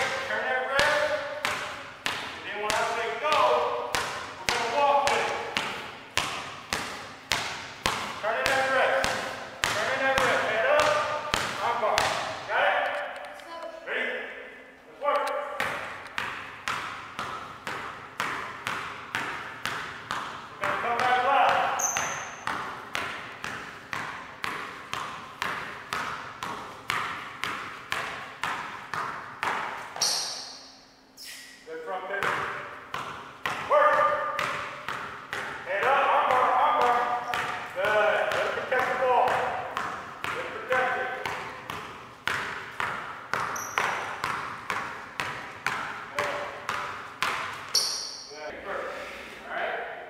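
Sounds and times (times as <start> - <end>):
basketball bouncing on hardwood floor: 0.0 - 12.5, 15.6 - 30.6, 32.2 - 48.3
high squeak: 21.8 - 22.4, 30.0 - 30.6.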